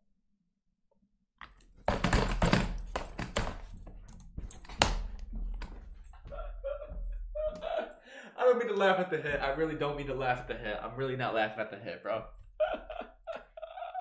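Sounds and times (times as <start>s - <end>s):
man laughing hard: 6.2s - 8.1s, 12.4s - 14.0s.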